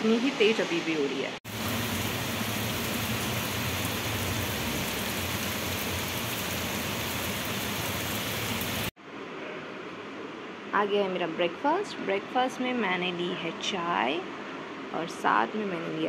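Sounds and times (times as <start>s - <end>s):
heavy rain on a rooftop: 1.5s - 8.9s.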